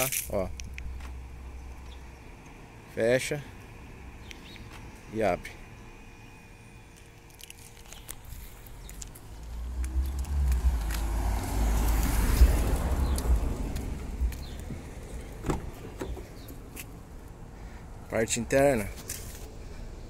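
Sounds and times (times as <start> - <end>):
car door latch click: 14.6 - 16.3.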